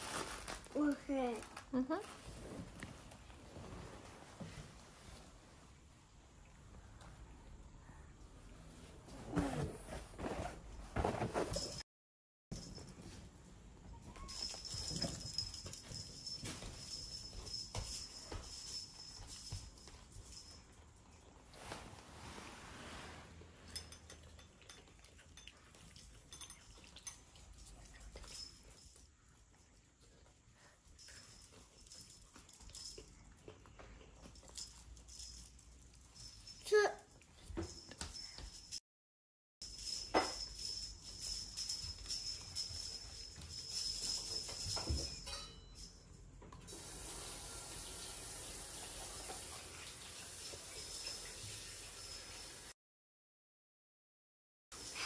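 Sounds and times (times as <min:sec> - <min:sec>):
cats eating and lapping: 0:00.0 - 0:09.0, 0:12.5 - 0:38.8, 0:39.6 - 0:52.7, 0:54.8 - 0:55.0
running water hiss: 0:46.7 - 0:52.7.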